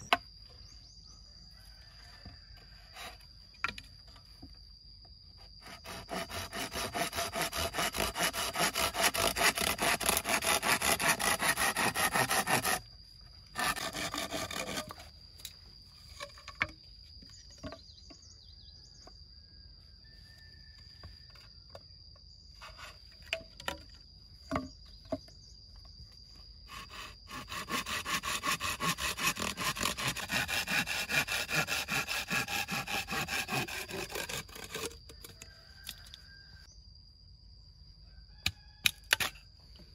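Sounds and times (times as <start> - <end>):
hand saw cutting bamboo: 5.6 - 12.9, 13.5 - 15.1, 26.7 - 35.1.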